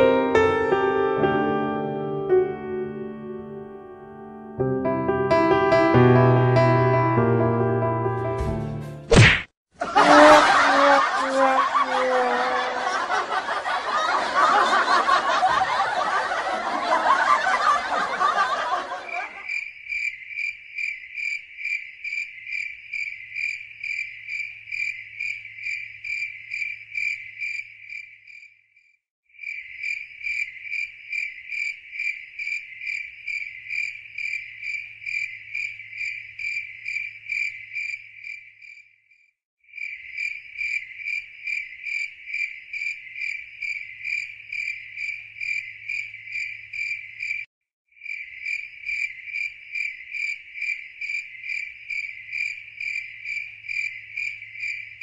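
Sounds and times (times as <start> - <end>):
crickets chirping: 12.0 - 28.6, 29.4 - 39.0, 39.7 - 55.0.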